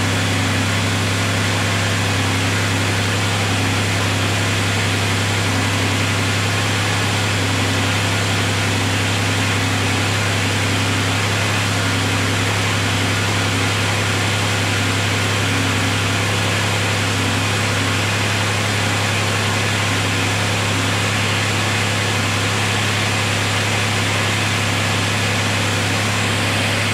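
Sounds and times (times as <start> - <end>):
car engine idling: 0.0 - 26.9.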